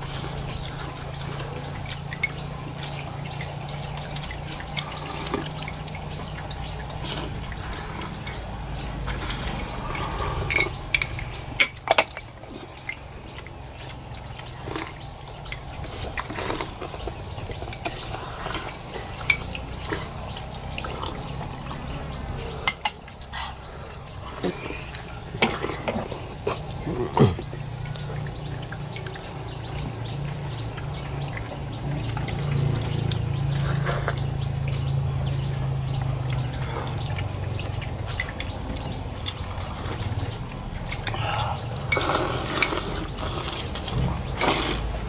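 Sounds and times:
broth liquid sounds: 0:00.0 - 0:45.0
steady low hum: 0:00.0 - 0:45.0
utensils clicking against bowls: 0:00.3 - 0:23.3, 0:35.6 - 0:45.0.

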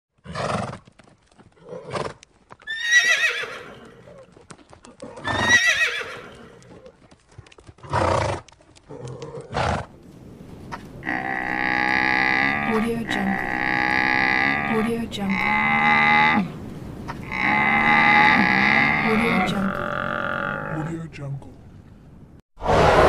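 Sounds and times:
faint hoofbeats: 0:00.2 - 0:14.6
horse whinnying: 0:02.7 - 0:04.2, 0:05.0 - 0:06.8.

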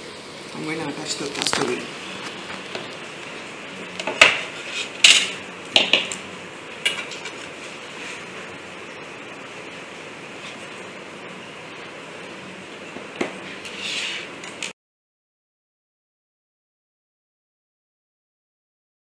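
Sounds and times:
steady low hiss: 0:00.0 - 0:14.7.

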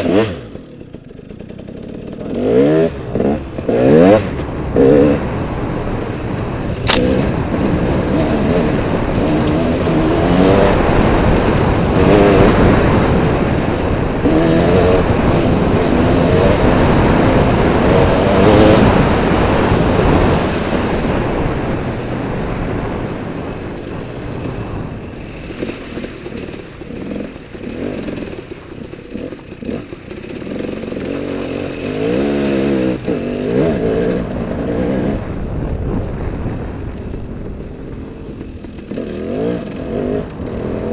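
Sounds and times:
motorbike engine revving: 0:00.0 - 0:40.9
sharp click: 0:06.8 - 0:07.1.

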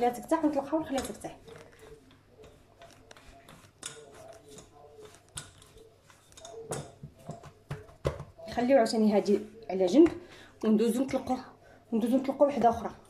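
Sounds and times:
rolling pin rolling dough: 0:00.0 - 0:10.2.

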